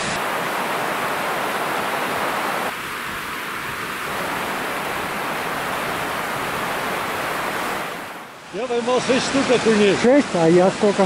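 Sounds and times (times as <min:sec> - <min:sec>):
water rushing through overflow: 0:00.0 - 0:11.0.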